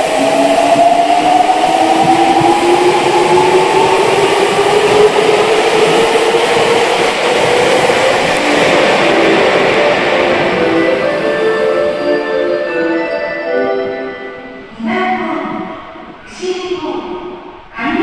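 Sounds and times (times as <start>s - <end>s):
train wheels rumbling on rails: 0.0s - 12.9s.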